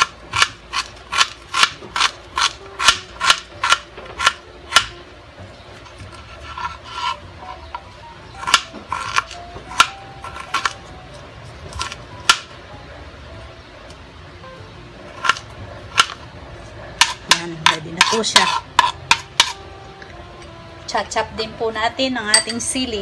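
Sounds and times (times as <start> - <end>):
knife chopping on cutting board: 0.0 - 5.0, 17.0 - 19.6.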